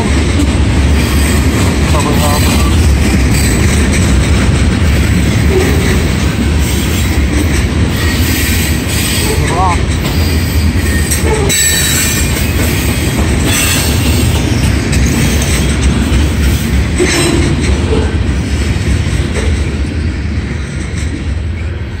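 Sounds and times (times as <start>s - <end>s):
freight train wheels rumbling: 0.0s - 22.0s
train wheels squealing: 7.9s - 9.4s, 10.1s - 15.7s.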